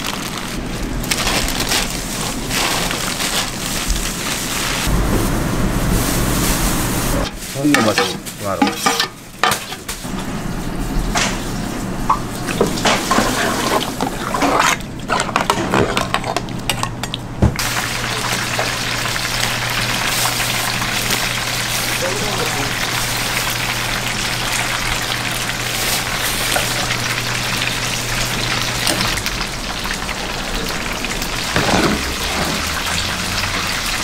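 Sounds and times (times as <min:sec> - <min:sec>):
utensils stirring and knocking: 0:07.2 - 0:09.9, 0:12.5 - 0:17.2
food sizzling in hot oil: 0:17.6 - 0:34.0.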